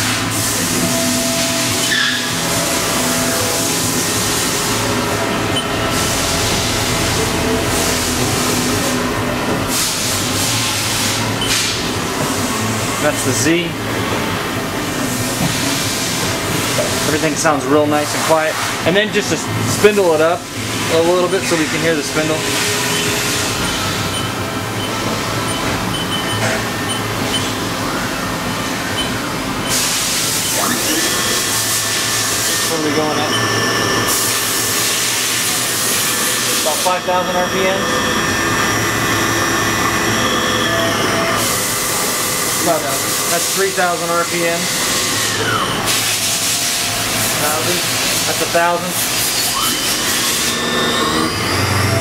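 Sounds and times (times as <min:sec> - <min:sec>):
machine table servo whine: 0:00.0 - 0:52.0
machine tools running: 0:00.0 - 0:52.0.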